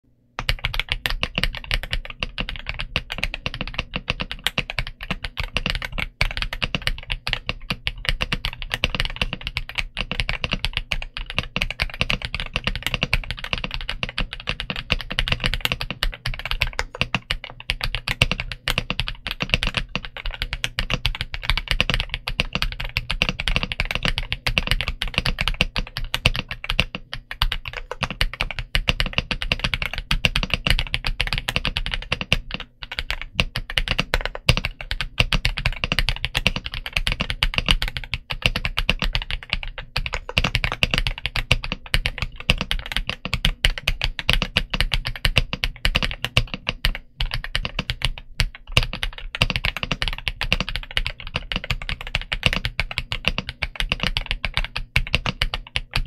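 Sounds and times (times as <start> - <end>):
mechanical keyboard typing: 0.4 - 56.0.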